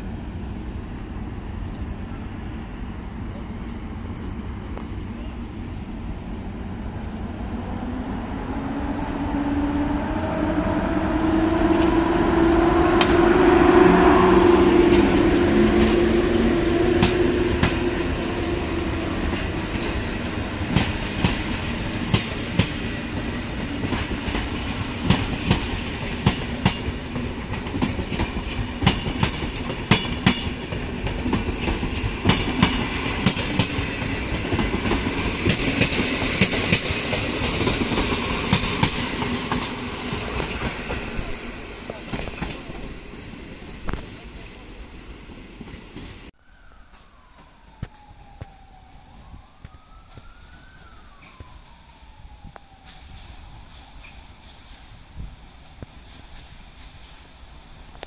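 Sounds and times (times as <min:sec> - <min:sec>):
electric locomotive humming: 0:00.0 - 0:47.8
train wheels clattering over rail joints: 0:20.7 - 0:41.3.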